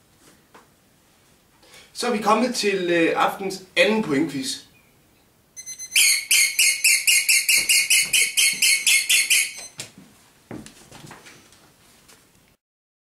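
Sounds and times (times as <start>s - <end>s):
squeaky rubber toy squeaking: 5.6s - 9.7s.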